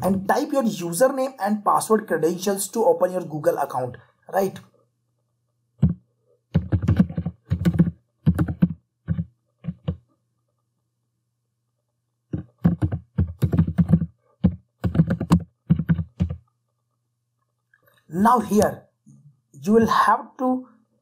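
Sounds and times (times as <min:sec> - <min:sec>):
typing on computer keyboard: 0:05.8 - 0:10.0, 0:12.4 - 0:16.4.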